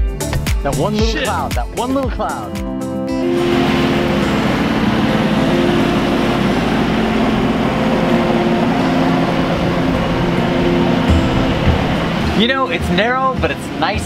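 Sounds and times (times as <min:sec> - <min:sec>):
low motor hum: 0:03.2 - 0:13.8
wind and water rushing: 0:03.2 - 0:14.0.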